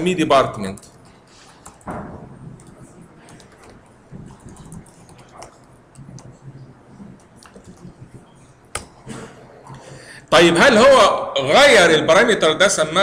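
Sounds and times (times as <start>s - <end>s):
keyboard typing: 0.6s - 9.0s.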